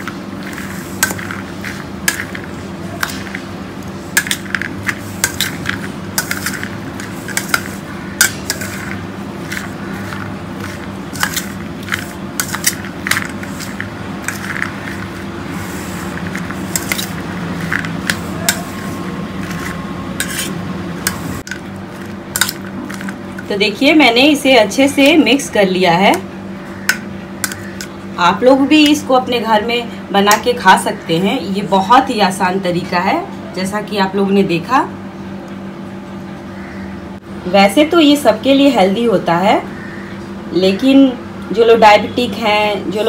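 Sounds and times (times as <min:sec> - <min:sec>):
metal spoon scraping steel bowl: 0:04.2 - 0:23.5, 0:26.9 - 0:28.0.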